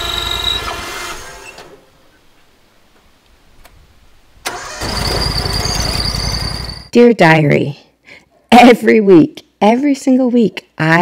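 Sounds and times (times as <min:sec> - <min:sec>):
sawmill engine running: 0:00.0 - 0:01.7, 0:04.5 - 0:06.9.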